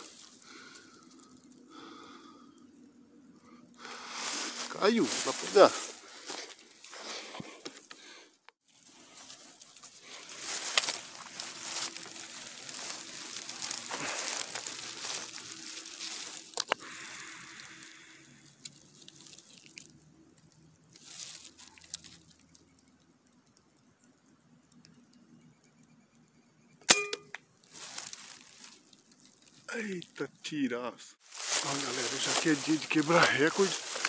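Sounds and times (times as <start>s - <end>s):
rustling handling noise: 0.0s - 1.6s, 3.8s - 16.8s, 18.5s - 22.7s, 27.6s - 30.0s, 31.2s - 34.0s
metallic ring: 26.9s - 27.4s.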